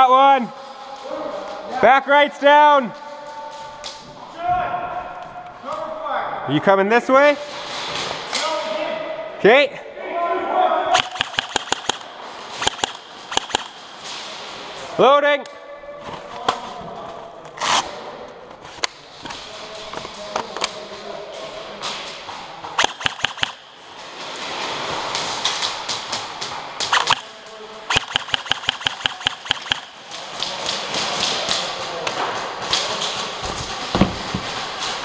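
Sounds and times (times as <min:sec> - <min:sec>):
airsoft guns firing: 0:11.0 - 0:14.1, 0:22.8 - 0:23.8, 0:26.8 - 0:31.6.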